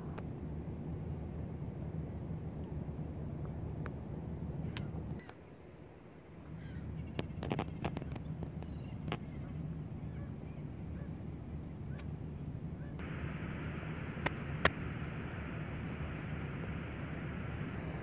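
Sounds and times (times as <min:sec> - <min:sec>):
distant birds calling: 0:06.4 - 0:12.1
wind rumble on microphone: 0:06.5 - 0:18.0
sharp clicks: 0:13.0 - 0:18.0
steady hiss: 0:13.0 - 0:18.0.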